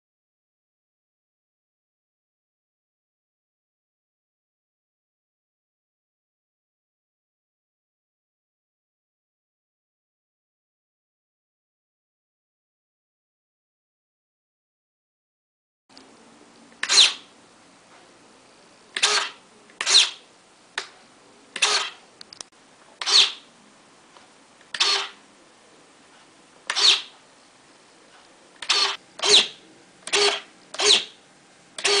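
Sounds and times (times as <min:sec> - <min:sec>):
servo buzzing: 0:16.8 - 0:17.3, 0:19.0 - 0:20.2, 0:21.6 - 0:22.0, 0:23.0 - 0:23.5, 0:24.7 - 0:25.2, 0:26.7 - 0:27.2, 0:28.6 - 0:31.2, 0:31.8 - 0:32.0.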